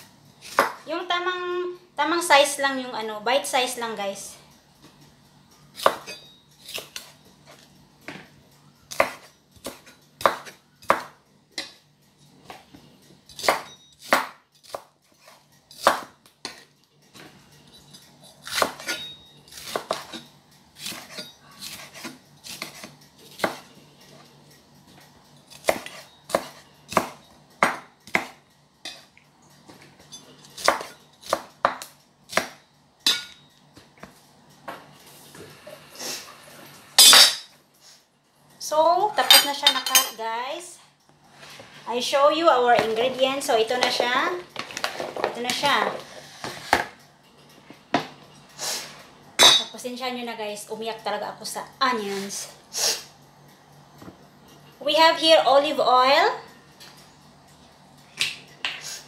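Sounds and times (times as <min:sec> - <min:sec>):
knife chopping on wooden board: 0:00.5 - 0:00.8, 0:08.9 - 0:11.1, 0:13.4 - 0:16.6, 0:20.8 - 0:23.6, 0:25.5 - 0:28.4, 0:30.6 - 0:32.6.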